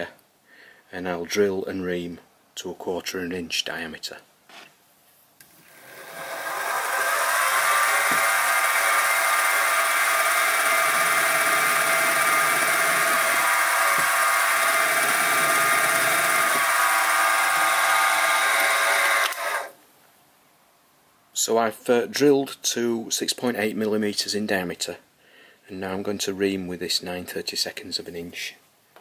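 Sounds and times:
milling machine spindle whine: 5.4s - 19.7s.

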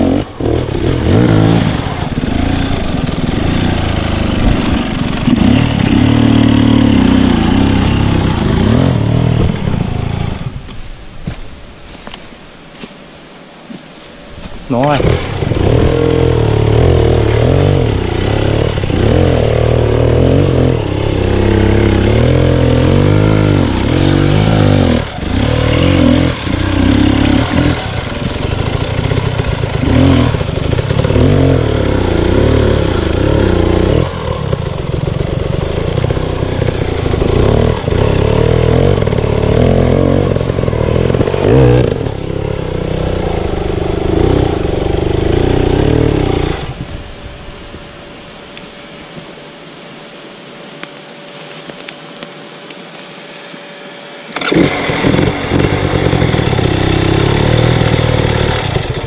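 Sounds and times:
dirt bike engine revving: 0.0s - 10.8s, 14.6s - 47.8s, 53.7s - 59.0s.

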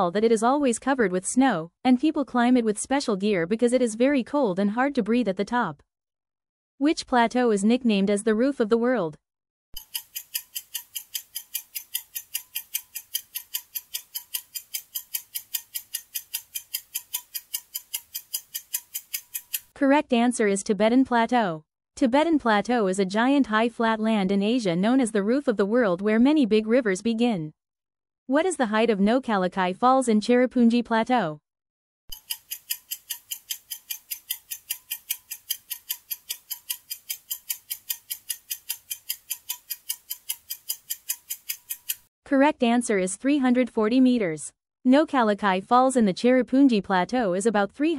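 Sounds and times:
clock ticking fast: 9.8s - 19.7s, 32.1s - 42.1s.

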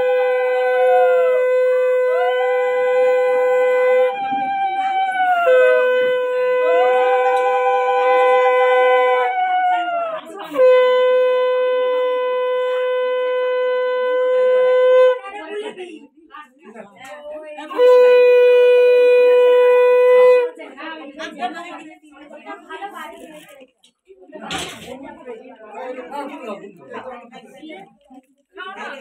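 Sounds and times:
conch shell low steady blasts: 0.0s - 9.4s, 10.5s - 15.3s, 17.7s - 20.5s
conch shell swelling blast: 0.0s - 9.8s, 10.4s - 15.3s, 17.7s - 20.6s.

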